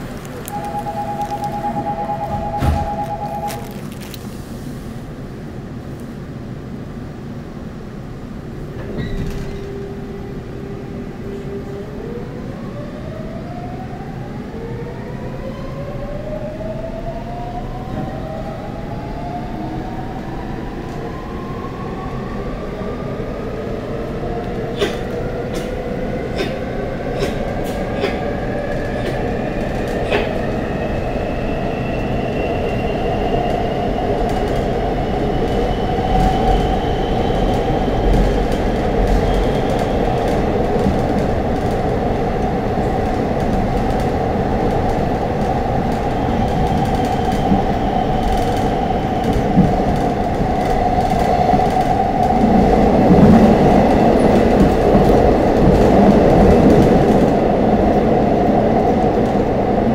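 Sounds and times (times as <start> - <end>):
subway train accelerating: 0.0 - 59.9.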